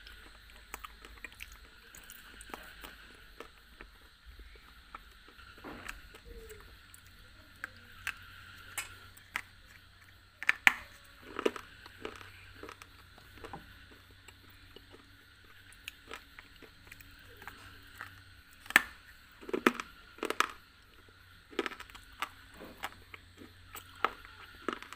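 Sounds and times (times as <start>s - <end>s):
biting and chewing hard bar: 7.9s - 24.9s.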